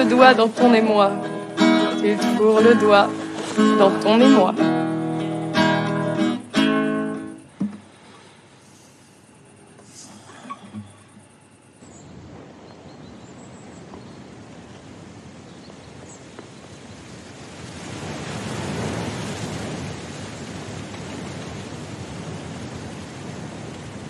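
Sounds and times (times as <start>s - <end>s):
steady rushing noise: 0.0s - 10.9s.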